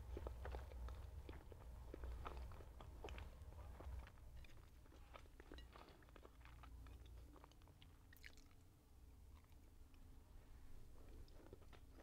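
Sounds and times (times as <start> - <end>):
close-up chewing with mouth clicks: 0.0 - 8.7.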